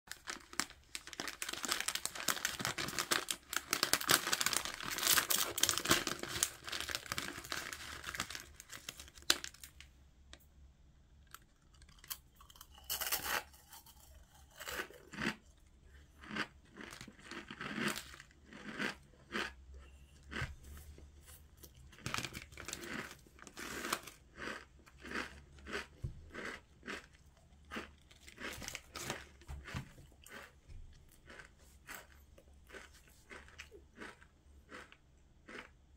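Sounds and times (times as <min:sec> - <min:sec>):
dry snack crunching: 0:00.1 - 0:09.7, 0:11.3 - 0:20.4, 0:21.6 - 0:35.8
foil packet crinkling and tearing: 0:00.1 - 0:09.8, 0:22.0 - 0:24.2.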